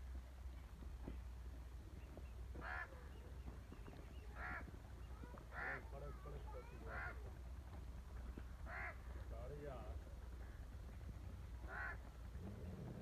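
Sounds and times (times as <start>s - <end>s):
steady low hum: 0.0s - 13.0s
crow cawing: 2.6s - 3.1s, 4.3s - 4.7s, 5.5s - 6.0s, 6.8s - 7.3s, 8.6s - 9.2s, 11.6s - 12.1s.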